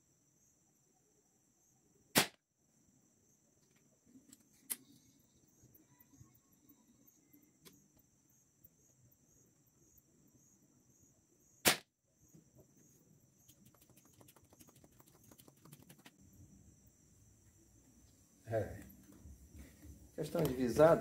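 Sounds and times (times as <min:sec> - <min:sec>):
air rifle shot crack: 0:02.1 - 0:02.4, 0:11.6 - 0:11.9.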